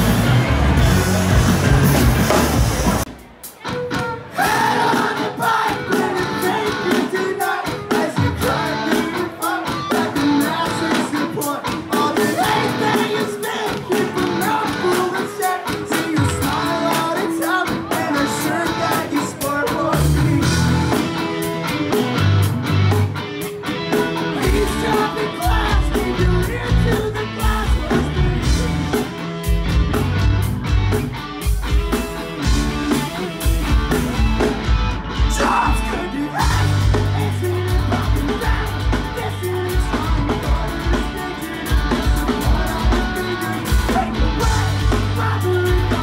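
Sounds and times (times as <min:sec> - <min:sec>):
distorted electric guitars: 0:00.0 - 0:46.0
driving drum beat: 0:00.0 - 0:46.0
singer: 0:03.7 - 0:21.2, 0:24.2 - 0:29.1, 0:35.2 - 0:46.0.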